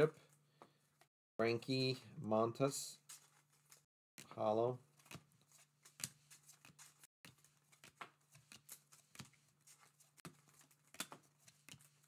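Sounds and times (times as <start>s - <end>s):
trading cards clicking and rustling: 4.9s - 12.0s.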